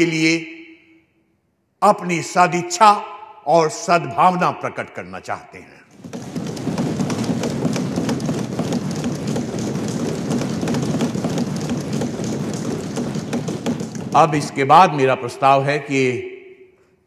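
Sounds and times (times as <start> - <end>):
thumping on wooden desks: 5.9 - 14.7
crowd applauding: 6.0 - 14.4.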